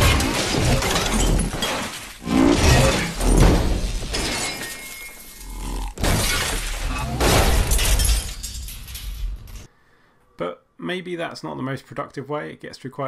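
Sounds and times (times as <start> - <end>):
crashing and shattering: 0.0 - 9.7.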